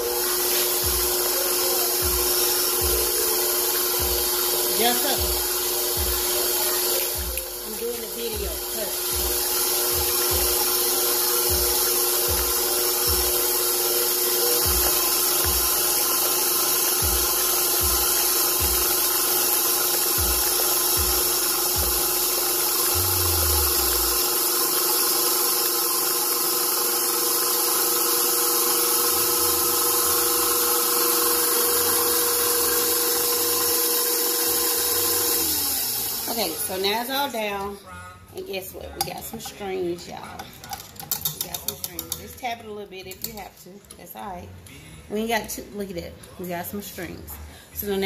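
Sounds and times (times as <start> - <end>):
stand mixer motor hum: 0.0 - 37.0.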